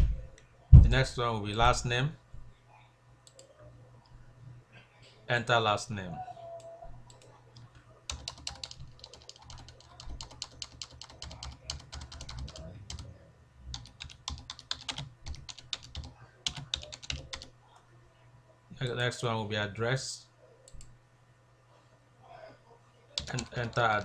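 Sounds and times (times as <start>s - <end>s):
low steady hum: 0.0s - 24.0s
computer keyboard typing: 8.1s - 13.1s, 13.7s - 17.5s, 23.2s - 24.0s.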